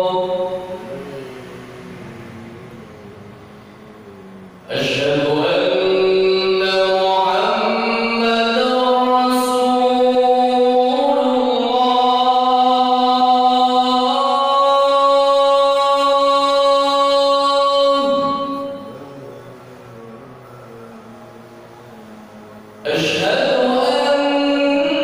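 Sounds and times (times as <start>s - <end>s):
man chanting call to prayer: 0.0s - 3.0s, 4.6s - 25.0s.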